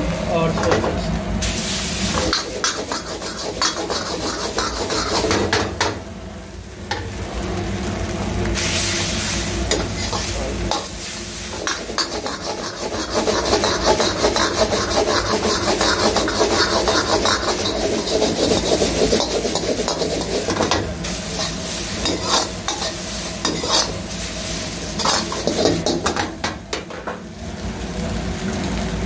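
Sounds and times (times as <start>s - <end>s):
frying sizzle: 0.0s - 29.0s
metal ladle scraping a wok: 2.2s - 5.6s, 11.5s - 24.2s, 24.8s - 26.2s.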